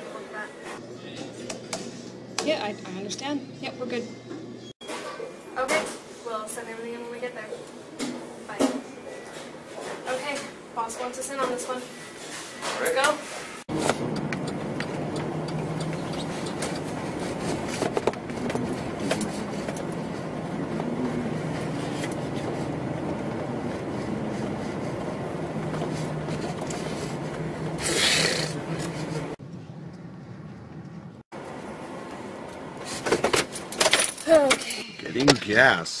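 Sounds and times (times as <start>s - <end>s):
car engine drone: 13.7s - 32.5s
road rumble: 13.7s - 33.8s.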